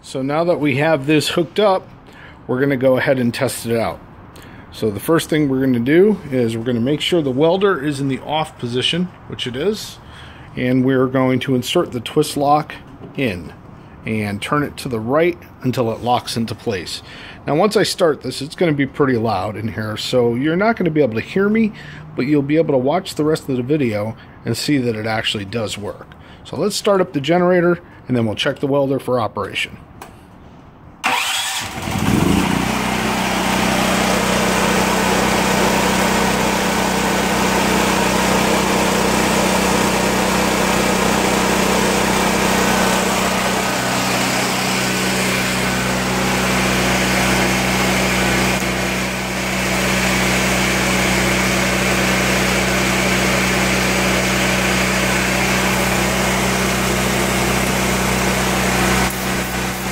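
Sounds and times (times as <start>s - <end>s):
portable generator running: 31.0s - 59.9s.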